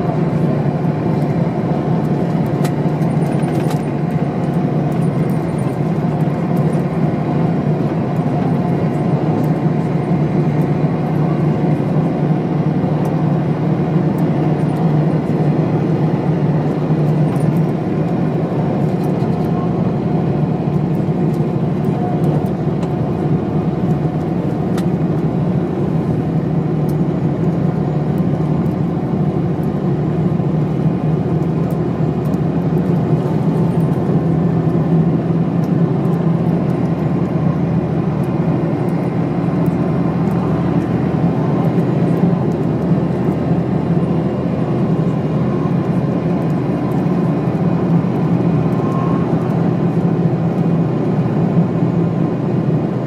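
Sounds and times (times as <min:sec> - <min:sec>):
bus engine humming: 0:00.0 - 0:53.0
road noise: 0:00.0 - 0:53.0.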